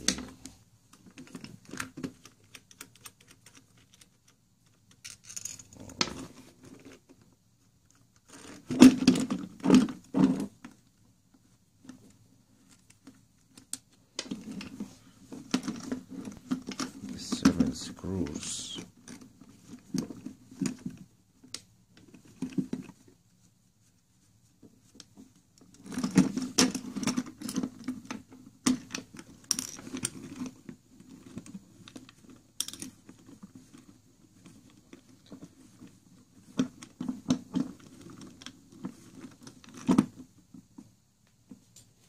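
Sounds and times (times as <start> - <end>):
metal parts clicking and rattling: 1.2 - 6.2.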